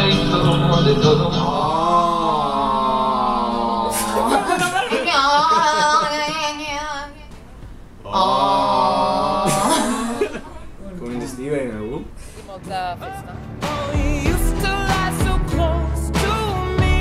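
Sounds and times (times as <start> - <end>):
person singing long held notes: 0.0 - 3.9.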